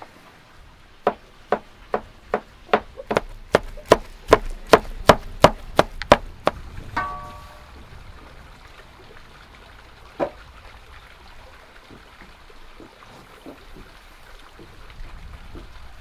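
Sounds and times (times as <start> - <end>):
cleaver chopping on wooden board: 1.1 - 6.6
short ringing tone: 7.0 - 7.7.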